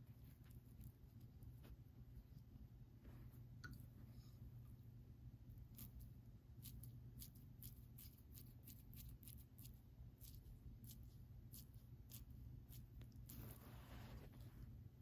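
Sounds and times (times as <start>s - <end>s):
low steady hum: 0.0s - 15.0s
damp sponge rubbing paper: 13.3s - 14.6s.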